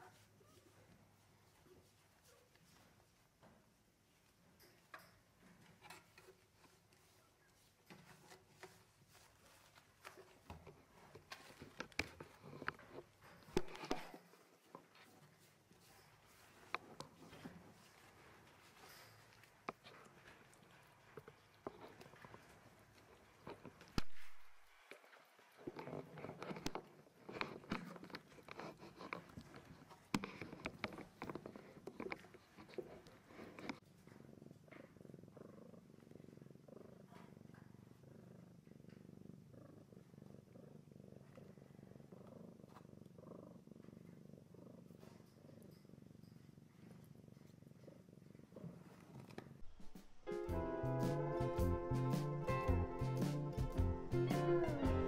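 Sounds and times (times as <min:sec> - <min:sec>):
cat licking and nibbling clicks: 0:25.7 - 0:33.8.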